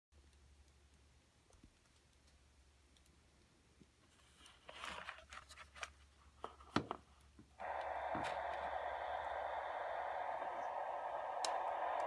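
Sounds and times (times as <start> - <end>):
loudspeaker static hiss: 7.6 - 12.0.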